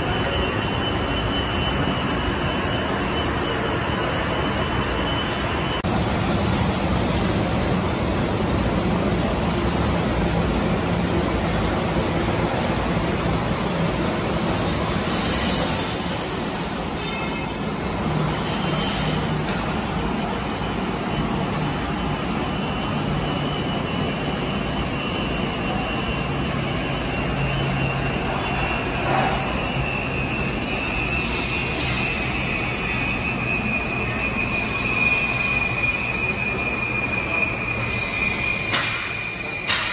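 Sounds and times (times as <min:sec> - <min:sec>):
high whine: 0:00.0 - 0:15.1.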